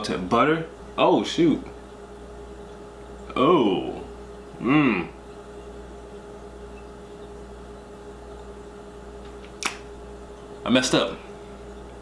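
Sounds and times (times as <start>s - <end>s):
room hum: 0.0s - 12.0s
person saying oh: 4.6s - 5.2s.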